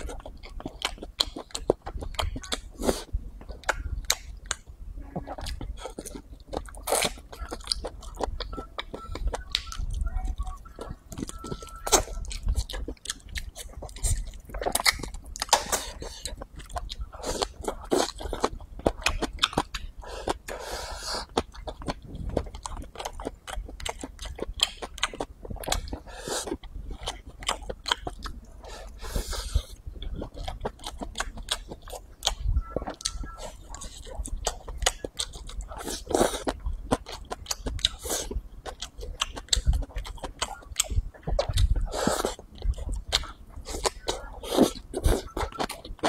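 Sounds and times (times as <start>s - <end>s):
person chewing food: 0.0s - 46.0s.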